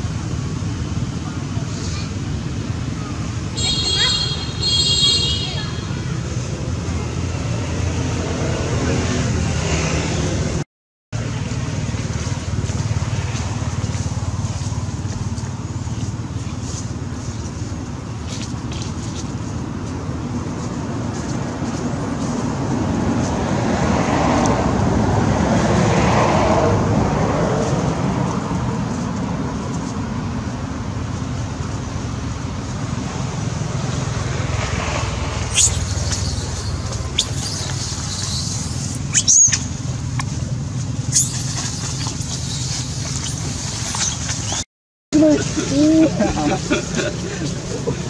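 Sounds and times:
distant traffic rumble: 0.0 - 10.6, 11.2 - 48.0
high-pitched squeaks: 35.5 - 39.6, 41.1 - 44.6.

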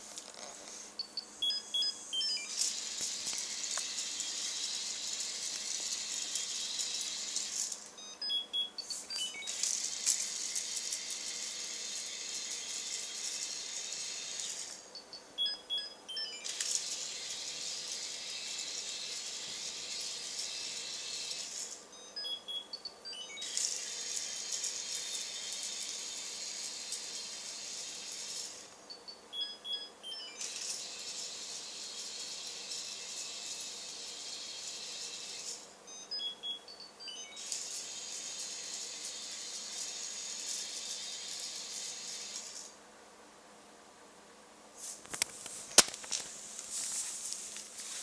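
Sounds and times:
electronic beeps: 1.0 - 2.7, 8.0 - 9.6, 14.9 - 16.6, 21.9 - 23.6, 28.9 - 30.6, 35.9 - 37.5.

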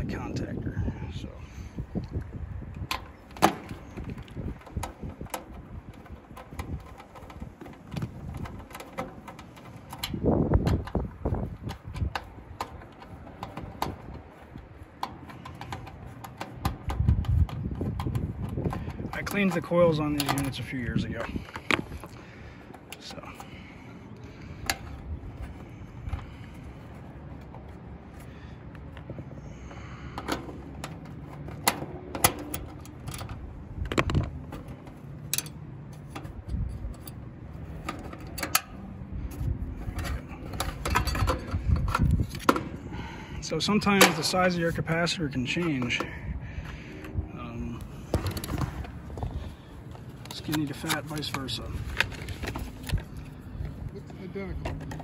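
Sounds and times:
metal tool clicking on terminals: 2.1 - 23.5, 30.2 - 35.6, 37.8 - 38.9.

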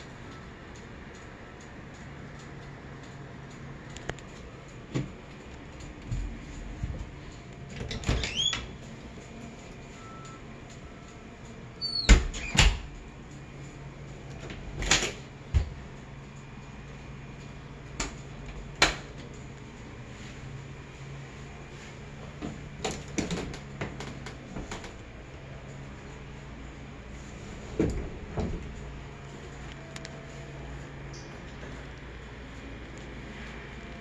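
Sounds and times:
door hinge squeak: 7.8 - 8.8, 11.8 - 12.9.

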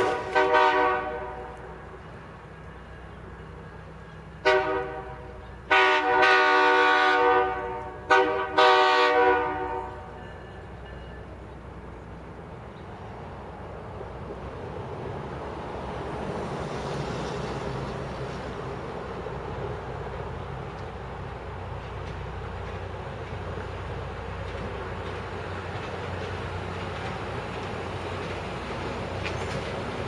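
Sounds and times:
locomotive air horn blasts: 0.0 - 1.8, 4.4 - 10.2
train rumbling: 0.0 - 30.0.

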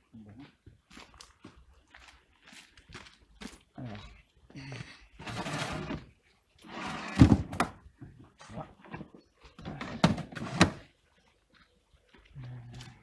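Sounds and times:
plastic crates scraping: 5.2 - 7.8.

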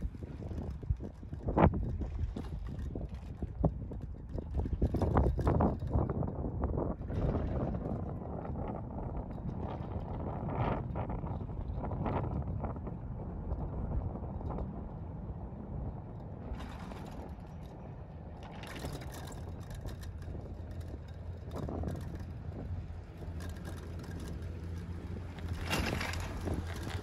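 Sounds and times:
steady low rumble: 0.0 - 27.0
wind rushing over microphone: 0.0 - 27.0
faint clicks and crackles: 16.1 - 27.0.

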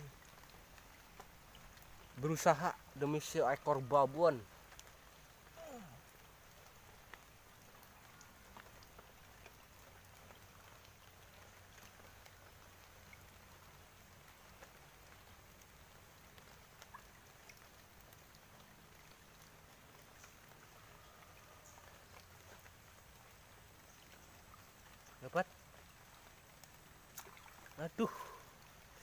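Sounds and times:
faint outdoor hiss: 0.0 - 29.0
soft ticks: 4.6 - 5.0.

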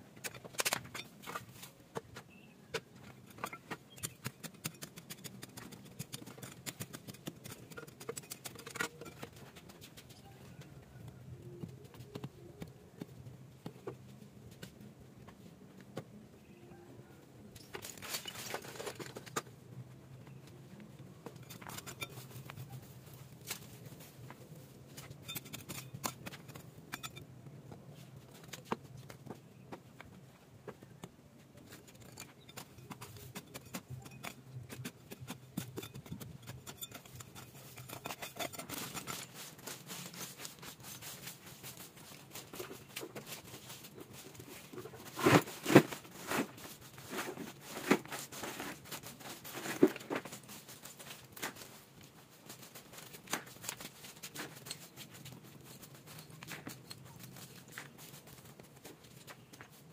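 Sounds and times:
stones knocking and scraping: 0.2 - 9.9, 17.6 - 19.6, 21.2 - 22.6, 25.0 - 51.8, 52.5 - 59.8.

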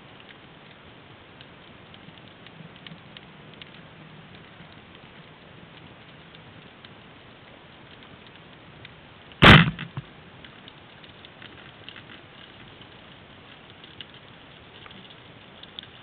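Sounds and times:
underwater clicks crackling: 1.4 - 7.0, 7.9 - 16.0
speargun firing crack: 9.4 - 10.0.

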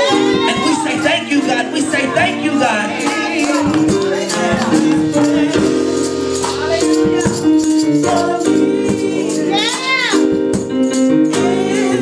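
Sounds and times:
people singing: 0.0 - 10.5, 11.1 - 12.0
shaker percussion: 0.0 - 11.9
keyboard chords: 0.0 - 12.0.

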